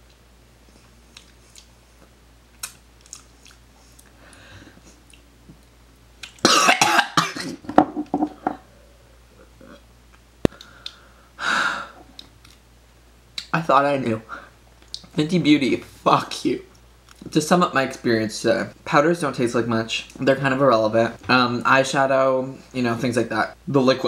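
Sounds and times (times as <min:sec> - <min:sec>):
person coughing hard: 0:06.4 - 0:07.6.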